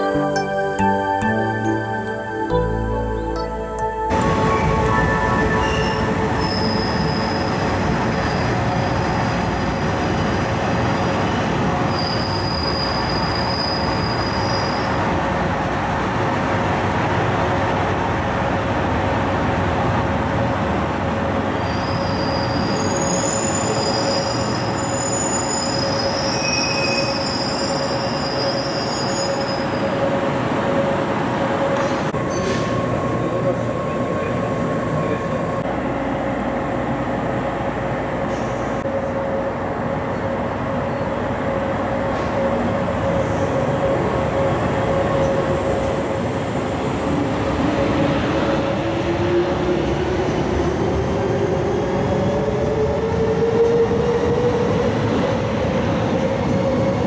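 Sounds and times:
train rolling rumble: 0:04.1 - 0:57.0
train wheels squealing: 0:05.5 - 0:09.4, 0:11.2 - 0:15.0, 0:21.6 - 0:30.0.

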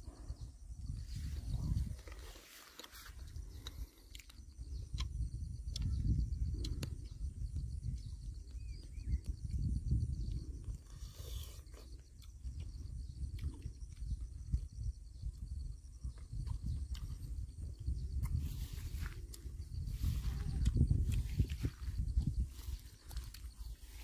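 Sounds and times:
wind rumble on microphone: 0:00.0 - 0:24.0
person chewing fruit: 0:00.1 - 0:24.0.

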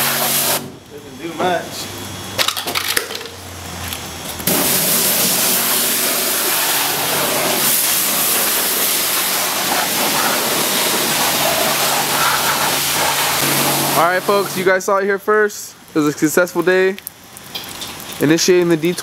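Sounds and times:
pressure washer spraying water: 0:00.0 - 0:00.8, 0:04.4 - 0:14.9.

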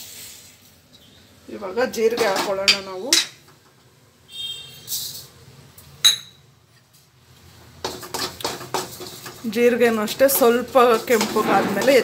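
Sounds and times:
metal clinking on steel pan: 0:06.0 - 0:06.4
quick taps and scrapes: 0:07.8 - 0:09.4.

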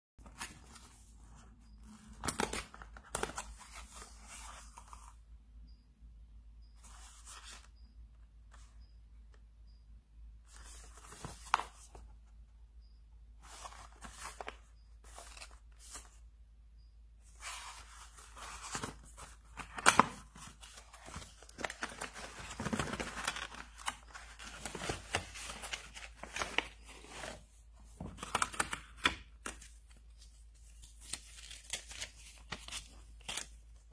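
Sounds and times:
cardboard packaging handled: 0:17.2 - 0:29.8.

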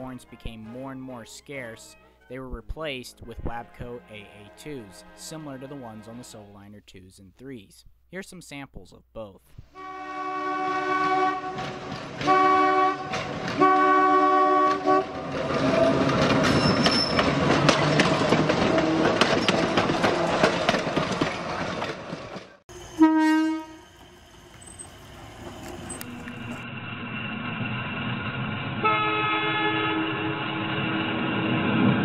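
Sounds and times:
train air horn blasts: 0:03.5 - 0:06.3, 0:09.7 - 0:15.2, 0:22.8 - 0:24.0, 0:28.8 - 0:30.8
wheels clicking over rail joints: 0:11.4 - 0:22.6, 0:24.0 - 0:26.6.

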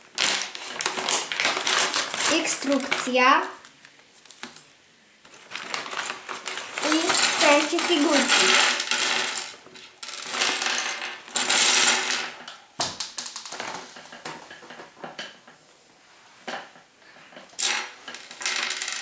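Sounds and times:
plastic bag crinkling: 0:00.0 - 0:04.7, 0:05.3 - 0:09.5
plastic parts clattering on wood: 0:05.3 - 0:15.5, 0:16.5 - 0:19.0
plastic pieces clicking: 0:05.7 - 0:13.6.

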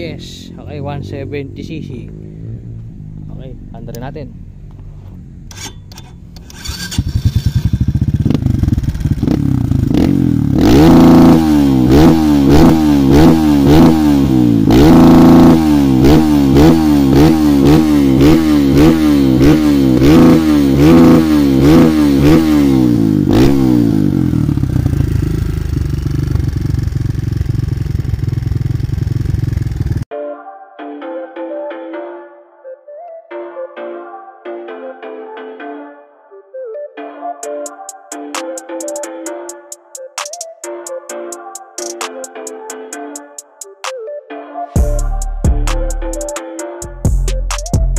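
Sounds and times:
dirt bike idling and revving: 0:05.2 - 0:30.1.

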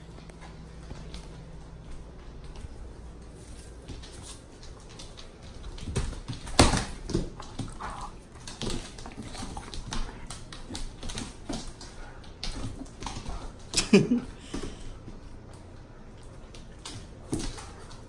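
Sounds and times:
dogs play growling: 0:06.9 - 0:18.0.

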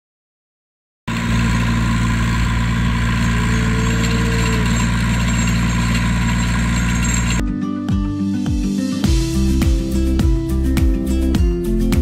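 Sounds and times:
tractor engine running: 0:01.1 - 0:07.4.

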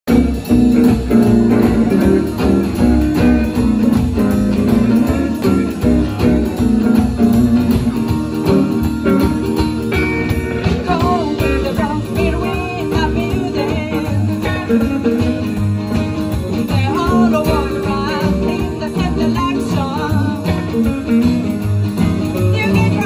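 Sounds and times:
live band playing: 0:00.0 - 0:23.0
person singing: 0:10.3 - 0:15.6, 0:16.3 - 0:21.6, 0:22.3 - 0:23.0.

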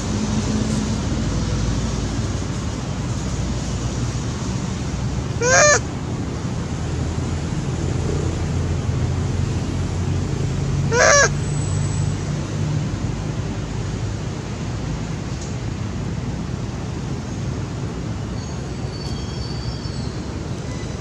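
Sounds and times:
monkey honking calls: 0:05.4 - 0:05.9, 0:10.8 - 0:11.5.

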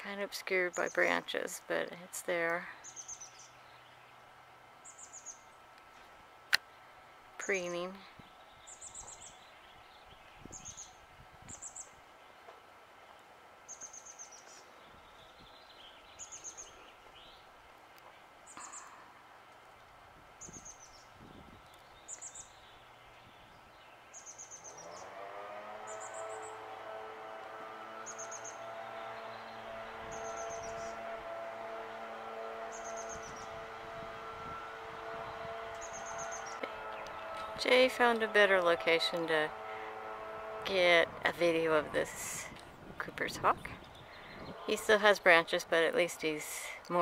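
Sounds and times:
motor humming: 0:02.3 - 0:47.0
small bird chirping: 0:20.4 - 0:25.0, 0:35.8 - 0:37.2.

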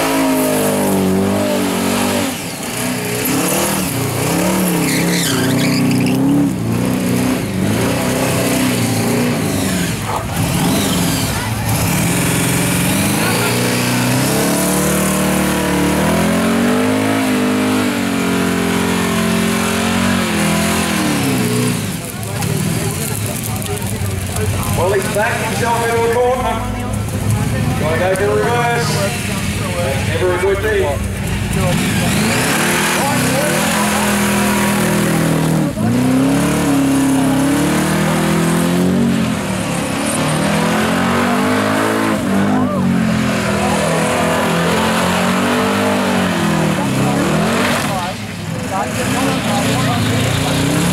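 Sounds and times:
tyres screeching: 0:00.0 - 0:22.8
car engine revving: 0:00.0 - 0:50.9
spinning tyres hissing: 0:00.0 - 0:50.9.

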